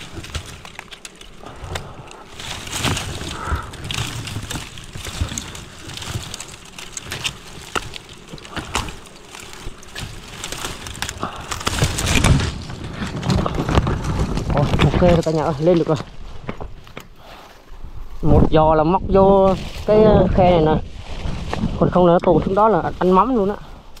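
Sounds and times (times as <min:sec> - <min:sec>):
scraping on rock: 0:00.0 - 0:18.6.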